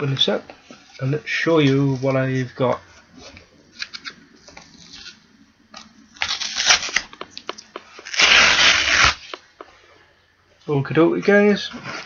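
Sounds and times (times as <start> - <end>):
packaging crinkling and clicking: 5.8 - 9.7
packaging ripping: 6.2 - 7.2, 7.9 - 9.4.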